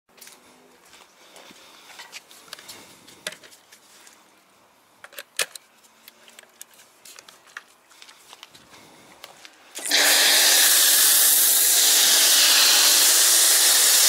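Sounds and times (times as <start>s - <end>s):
metal and plastic clicks: 5.0s - 6.8s.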